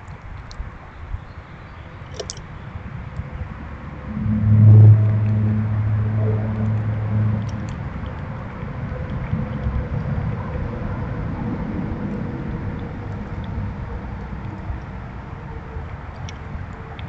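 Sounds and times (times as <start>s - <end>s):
low engine hum: 0.0s - 17.0s
light ticks: 15.9s - 17.0s.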